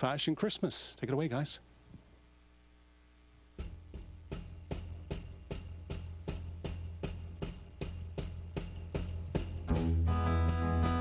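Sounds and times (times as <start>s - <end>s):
jingling percussion beat: 3.6s - 11.0s.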